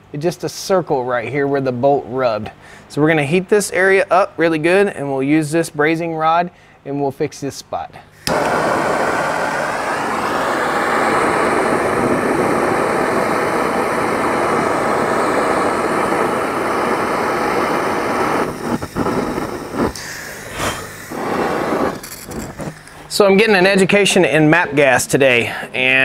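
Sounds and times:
gas torch flame rushing: 8.2 - 24.1
torch flame sputtering: 8.2 - 24.1.

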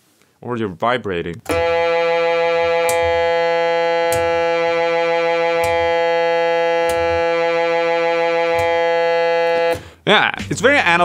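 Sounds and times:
toy organ holding a steady note: 1.5 - 9.8.

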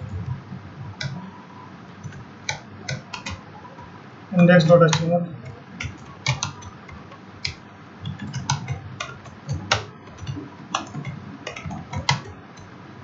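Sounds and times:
keyboard typing clicks: 2.0 - 3.8, 4.4 - 12.7.

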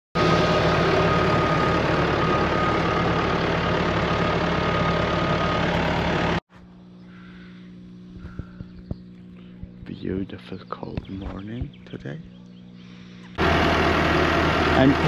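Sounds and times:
tractor diesel engine running: 0.2 - 6.4, 12.6 - 15.0.

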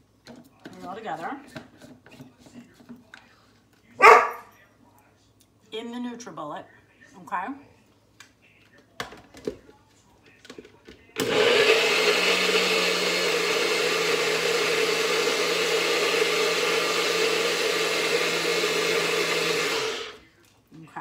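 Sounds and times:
blender running: 11.2 - 20.2.

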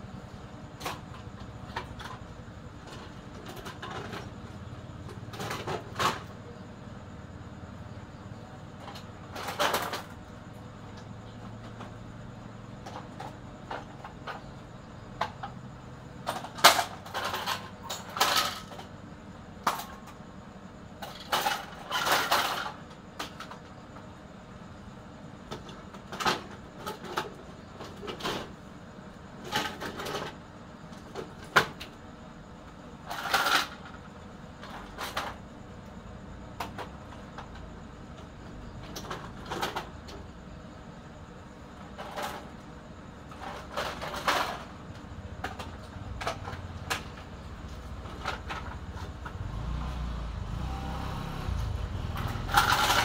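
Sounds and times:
circuit boards clattering: 52.2 - 53.0.

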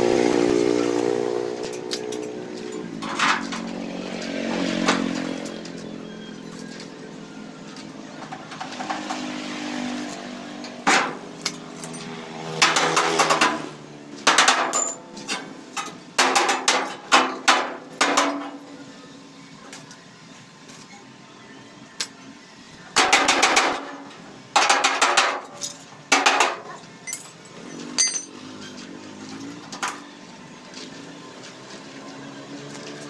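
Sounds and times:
hammer strikes on metal: 12.6 - 13.6, 14.2 - 15.0, 15.8 - 18.7, 23.0 - 25.5, 26.1 - 26.7.

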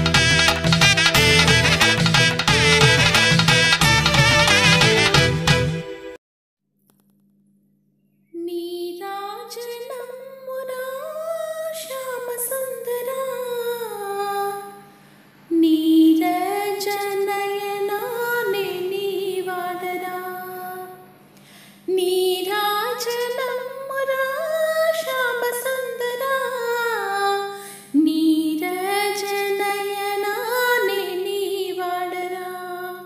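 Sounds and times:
woman singing: 8.4 - 14.9, 15.5 - 21.1, 21.9 - 33.0.

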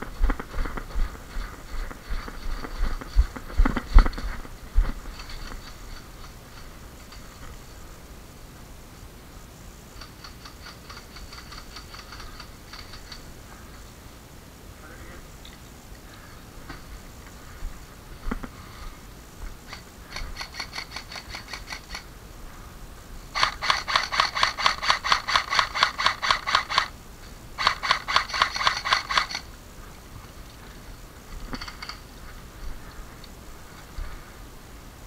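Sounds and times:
rapid mechanical clicking: 10.0 - 13.2, 19.7 - 22.1, 23.4 - 26.9, 27.6 - 29.5.

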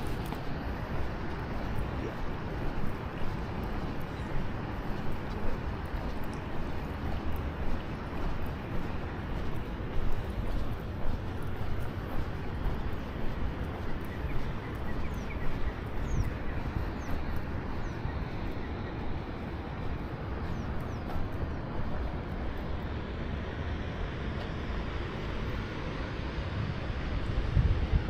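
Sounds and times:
outdoor background rumble: 0.0 - 28.0
small birds chirping: 1.4 - 22.1.

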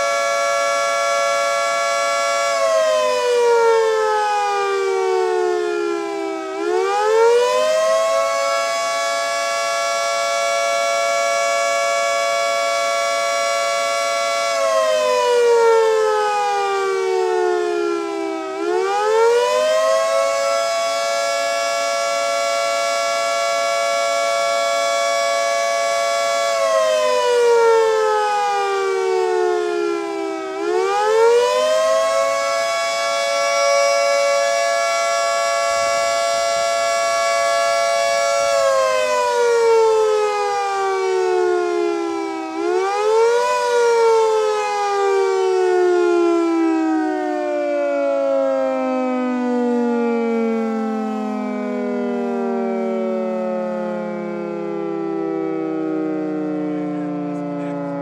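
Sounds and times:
electromechanical siren wailing: 0.0 - 58.0.

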